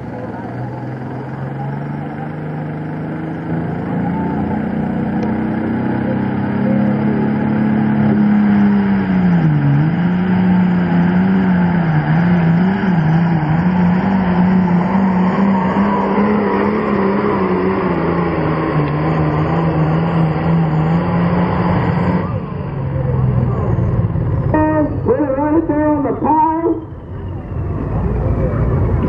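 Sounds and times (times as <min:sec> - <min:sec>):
diesel engine running under load: 0:00.0 - 0:29.0.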